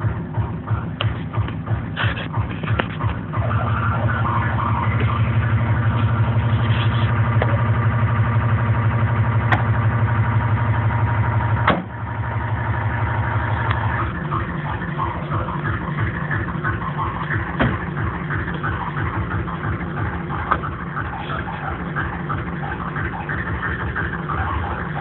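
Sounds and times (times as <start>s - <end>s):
car engine idling: 0.0s - 25.0s
car bonnet thump shut: 11.6s - 11.9s, 17.6s - 17.9s.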